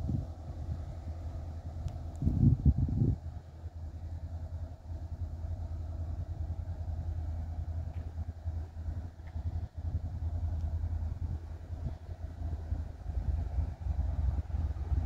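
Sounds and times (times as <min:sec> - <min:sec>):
engine rumbling: 0:00.0 - 0:15.0.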